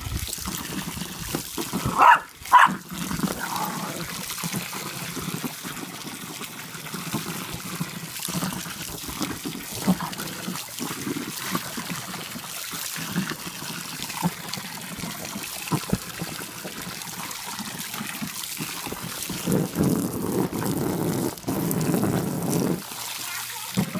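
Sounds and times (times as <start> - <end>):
dog splashing in water: 0.0 - 5.8
garden hose spraying water: 0.0 - 23.9.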